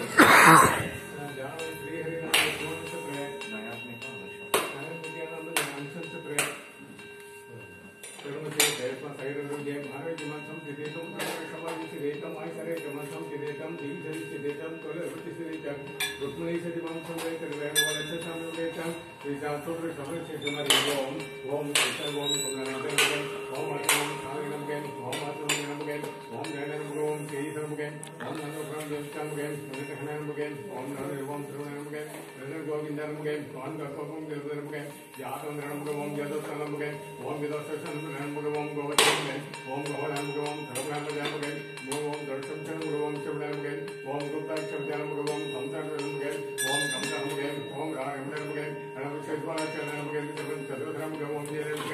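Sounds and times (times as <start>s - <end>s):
brass implements clinking and ringing: 0.9s - 51.9s
man chanting: 15.1s - 51.9s.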